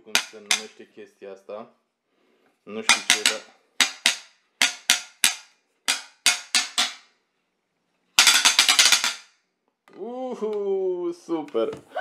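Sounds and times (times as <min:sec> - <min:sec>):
wooden clapper clacking: 0:00.0 - 0:00.8, 0:02.8 - 0:07.2, 0:08.1 - 0:09.4.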